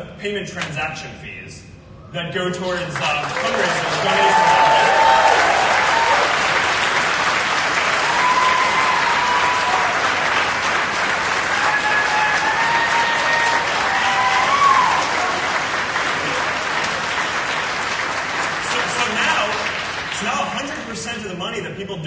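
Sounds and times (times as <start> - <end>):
audience applauding: 2.7 - 21.1
voices cheering: 3.2 - 17.3, 18.6 - 20.7.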